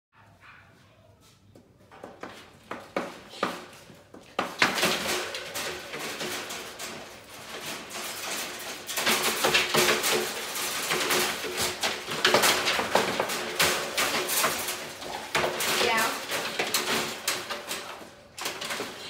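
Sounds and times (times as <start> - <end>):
metal dog crate rattling: 1.9 - 19.0.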